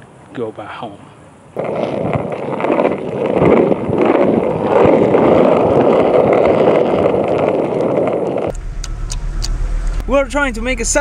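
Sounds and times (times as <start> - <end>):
skateboard wheels rolling on asphalt: 1.6 - 8.6.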